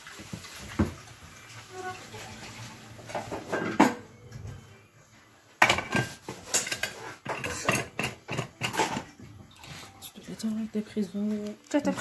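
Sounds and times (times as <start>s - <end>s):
metal lid clattering on pot rim: 5.6s - 9.1s.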